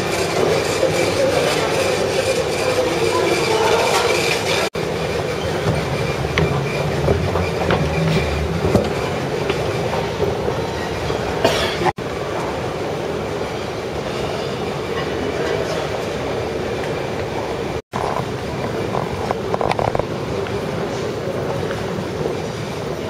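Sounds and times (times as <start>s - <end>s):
low rumbling hall hum: 0.0s - 23.0s
faint clatter and clicks: 17.9s - 20.6s.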